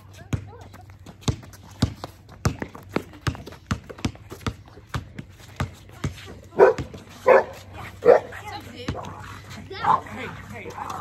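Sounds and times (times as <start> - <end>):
basketball bouncing on concrete: 0.0 - 11.0
dog barking: 6.6 - 8.4.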